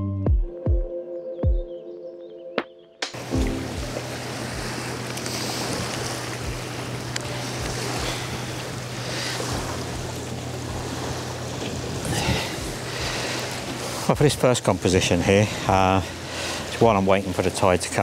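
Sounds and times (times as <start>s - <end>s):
low hum: 3.2s - 15.0s
small waves washing on shore: 3.2s - 18.0s
wind buffeting microphone: 3.2s - 18.0s.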